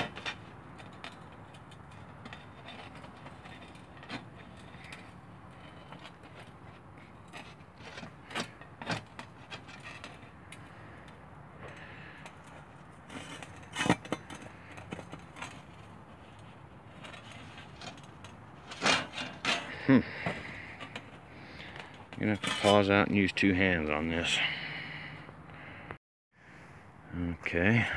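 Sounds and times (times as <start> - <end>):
metal pipe knocking and scraping: 0.0 - 10.7, 11.6 - 23.1.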